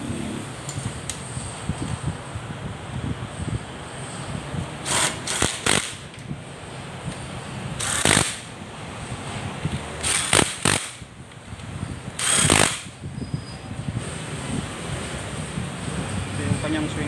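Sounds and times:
cordless power tool bursts: 0:04.8 - 0:06.0, 0:07.8 - 0:08.5, 0:10.0 - 0:11.0, 0:12.2 - 0:12.9.

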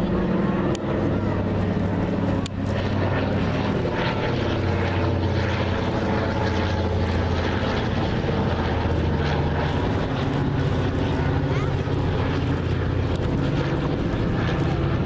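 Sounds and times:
propeller plane flying overhead: 0:00.0 - 0:15.0.

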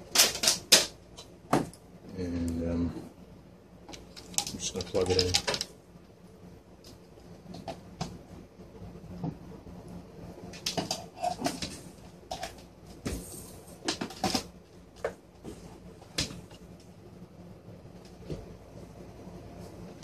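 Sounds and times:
faint hum: 0:00.0 - 0:20.0
clicks and knocks of handling objects: 0:03.9 - 0:05.7.

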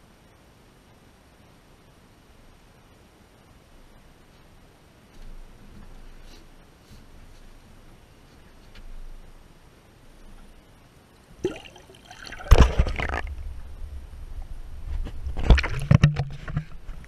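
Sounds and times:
sharp splash into water: 0:11.4 - 0:13.4.

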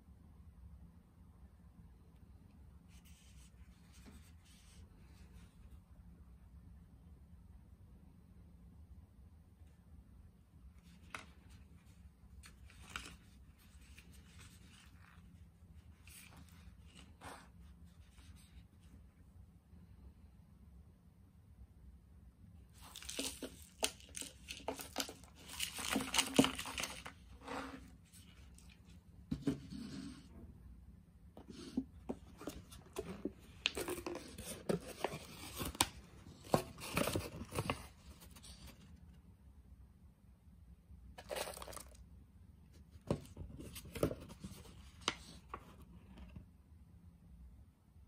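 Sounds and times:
paper lid crinkling rustle: 0:10.8 - 0:15.3, 0:22.8 - 0:30.0, 0:31.4 - 0:38.8, 0:41.2 - 0:42.0
paper cup crinkling and clicking: 0:22.8 - 0:27.1, 0:41.2 - 0:42.0.

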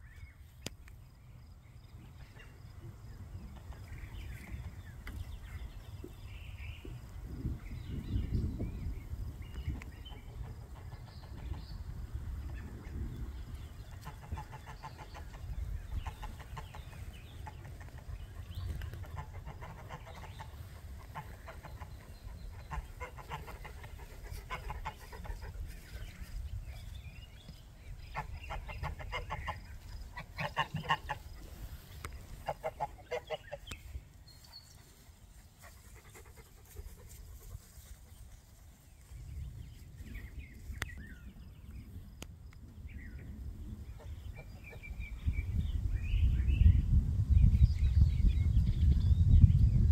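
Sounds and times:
chickens clucking: 0:02.1 - 0:07.2, 0:09.6 - 0:26.5, 0:27.5 - 0:38.3.

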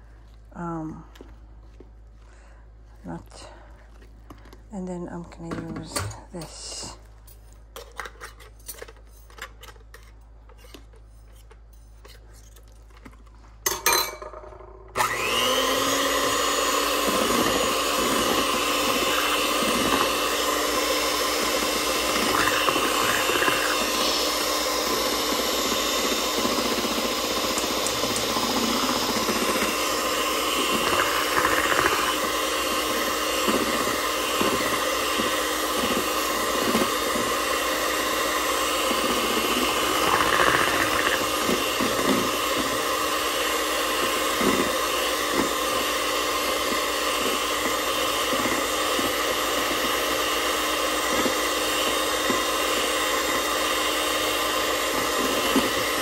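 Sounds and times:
electric hand mixer whisking: 0:14.9 - 0:56.0.

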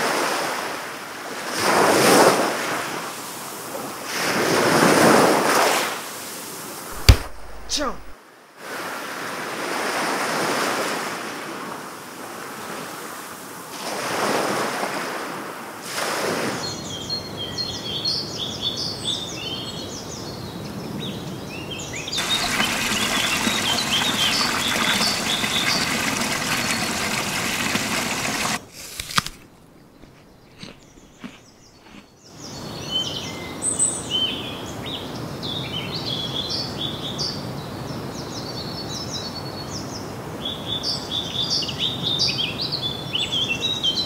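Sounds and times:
waves washing in: 0:06.9 - 0:11.5, 0:22.2 - 0:28.7
rush of water: 0:06.9 - 0:11.6, 0:22.2 - 0:29.1
birds chirping: 0:21.8 - 0:28.6, 0:29.6 - 0:32.6.

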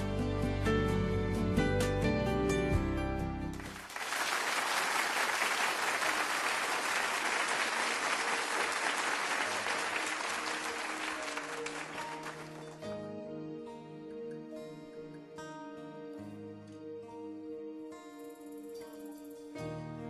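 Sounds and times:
audience applauding: 0:03.5 - 0:12.9.

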